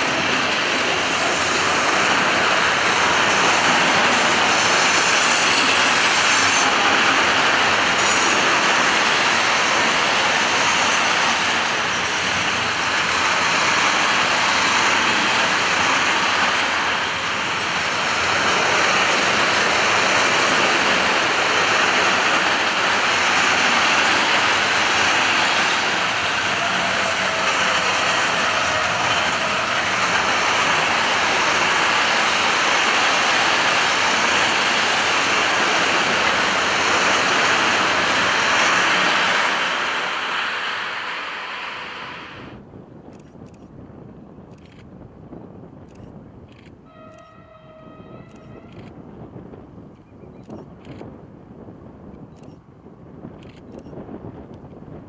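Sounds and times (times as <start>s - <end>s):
train wheels rumbling on rail: 0.0s - 55.0s
high squeal: 21.0s - 23.6s.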